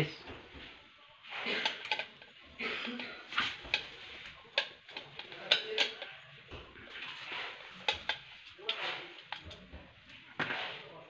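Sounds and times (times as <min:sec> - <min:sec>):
screwdriver scraping metal plate: 0:01.3 - 0:02.3, 0:03.3 - 0:06.2, 0:06.9 - 0:11.0
screwdriver clicking on metal plate: 0:01.6 - 0:02.3, 0:03.5 - 0:06.1.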